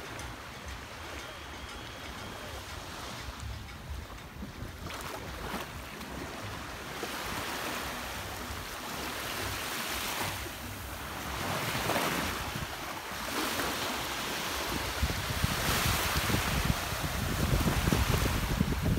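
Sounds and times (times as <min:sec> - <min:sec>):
small waves washing onto shore: 0:00.0 - 0:18.9
wind buffeting microphone: 0:10.6 - 0:18.9.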